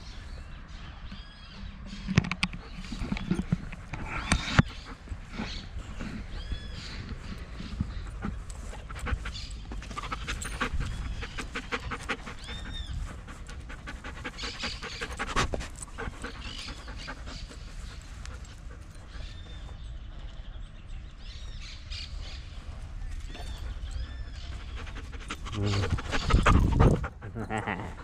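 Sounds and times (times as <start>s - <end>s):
dog panting quickly: 2.8s - 19.6s, 23.4s - 28.0s
wind rumble on microphone: 25.5s - 27.5s.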